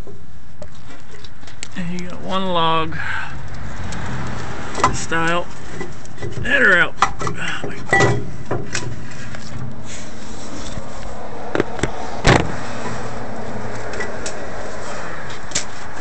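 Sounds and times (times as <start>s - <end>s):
camera handling knocks and rubs: 11.5s - 12.6s.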